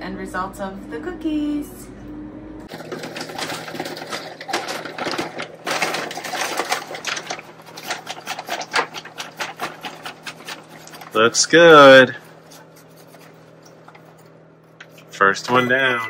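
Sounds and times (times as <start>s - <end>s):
cereal rattling in paper bag: 2.7s - 14.2s.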